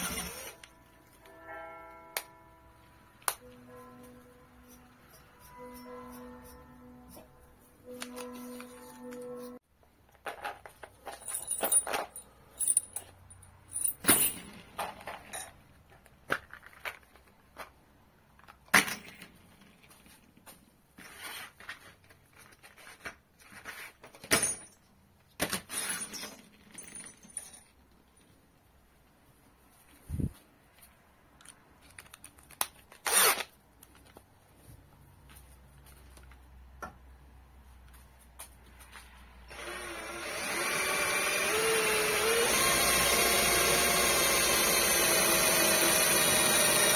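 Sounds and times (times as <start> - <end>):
metal drill bits clinking: 10.2 - 15.6, 25.6 - 28.2.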